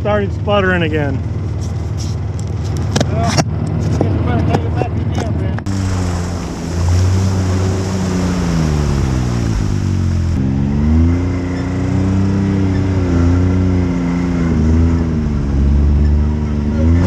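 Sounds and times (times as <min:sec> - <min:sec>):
utility vehicle engine revving: 0:05.6 - 0:17.0.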